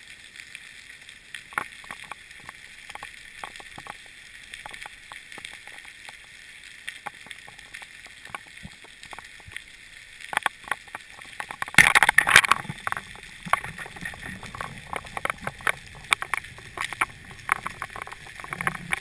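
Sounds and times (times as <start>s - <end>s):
crackling scraping burst: 7.0s - 19.0s
sharp clicks: 10.3s - 19.0s.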